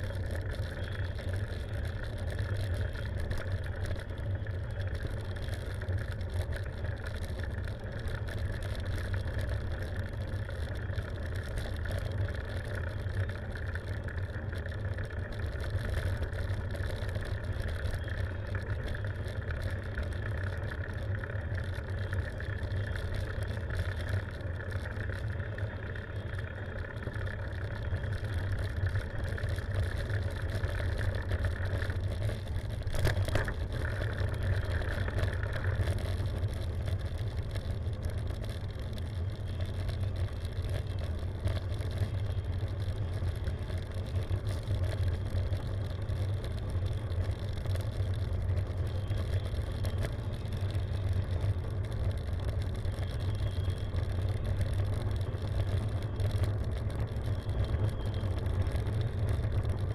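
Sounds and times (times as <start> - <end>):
bicycle tyres on asphalt: 0.0 - 59.9.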